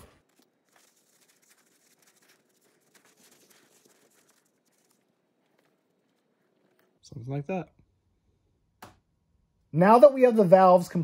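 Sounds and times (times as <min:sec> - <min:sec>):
faint cloth rubbing: 0:00.0 - 0:07.3.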